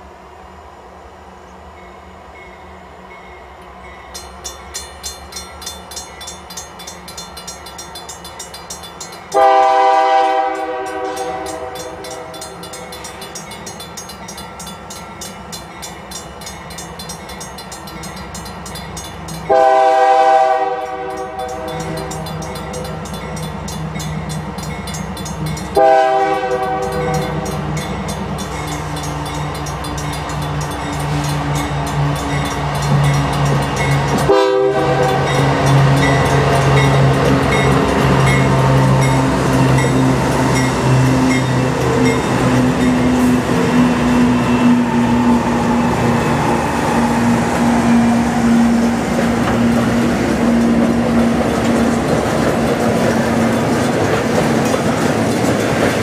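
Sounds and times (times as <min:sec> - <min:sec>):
locomotive air horn blasts: 0:09.4 - 0:12.1, 0:19.5 - 0:22.1, 0:25.8 - 0:27.2, 0:34.3 - 0:35.4.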